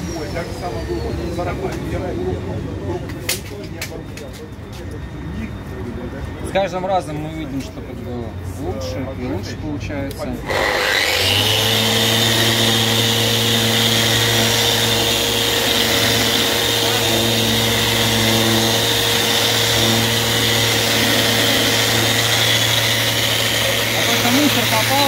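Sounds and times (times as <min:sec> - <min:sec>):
electric sander running: 0:10.4 - 0:25.0.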